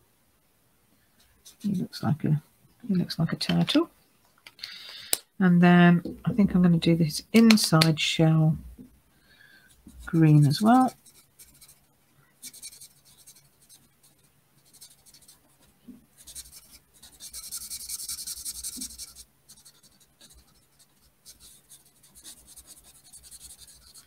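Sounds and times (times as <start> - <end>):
marker scratching on cardstock: 9.9 - 11.8, 12.4 - 15.6, 16.2 - 24.0.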